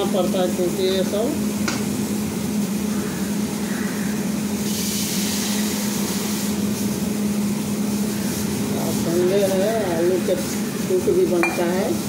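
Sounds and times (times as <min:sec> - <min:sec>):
low mechanical hum: 0:00.0 - 0:12.0
hiss: 0:02.9 - 0:12.0.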